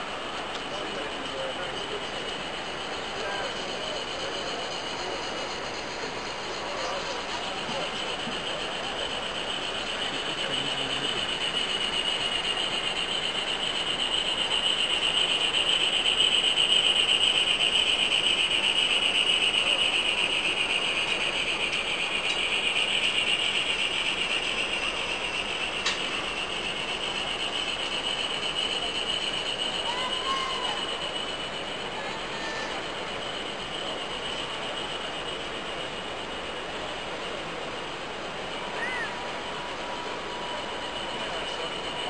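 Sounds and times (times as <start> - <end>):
model train motor whine: 0.0 - 42.0.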